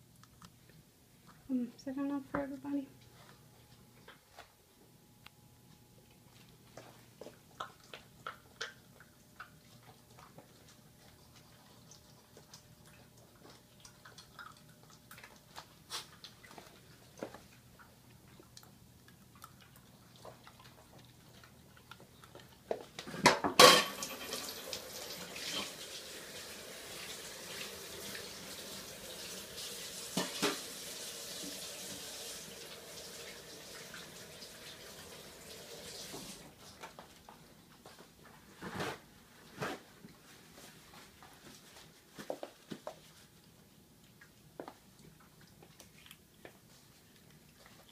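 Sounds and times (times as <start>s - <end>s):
dishes clattering: 23.2s - 24.6s
kitchen tap running into sink: 23.8s - 36.4s.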